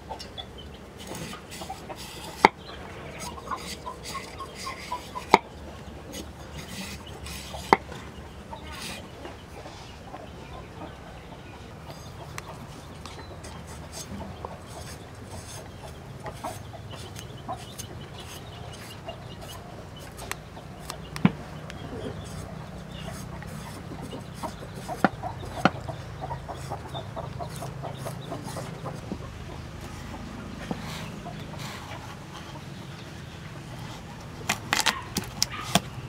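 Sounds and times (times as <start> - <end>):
chickens clucking: 0.0 - 36.0
knife scraping potato skin: 1.0 - 5.4, 6.1 - 7.8, 13.6 - 21.0, 22.1 - 22.5, 34.4 - 35.9.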